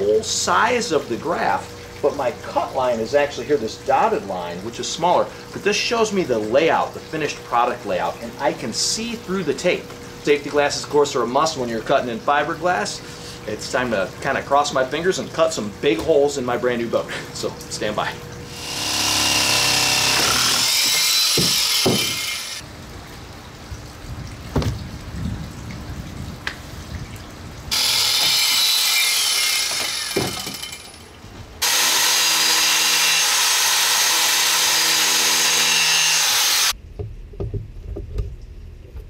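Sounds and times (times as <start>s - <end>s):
jigsaw cutting fiberglass: 18.5s - 22.6s, 27.7s - 30.9s, 31.6s - 36.8s
power drill cutting fiberglass: 18.5s - 22.6s, 27.7s - 31.0s, 31.6s - 36.8s
knocks and handling noises: 36.9s - 39.0s.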